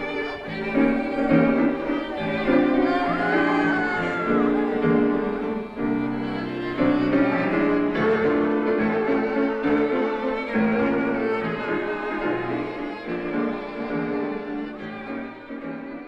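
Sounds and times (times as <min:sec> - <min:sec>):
violin and cello music: 0:00.0 - 0:16.0.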